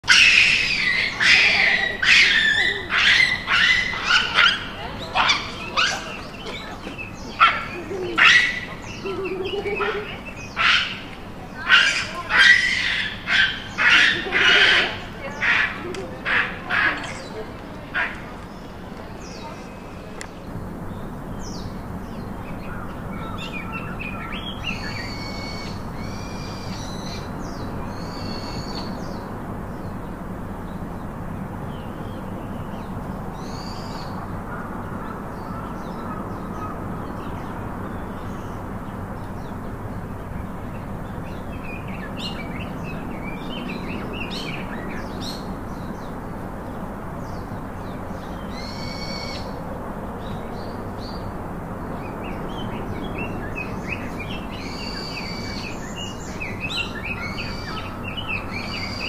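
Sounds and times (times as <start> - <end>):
low hum and hiss: 0.0 - 59.0
small birds chirping: 0.0 - 59.0.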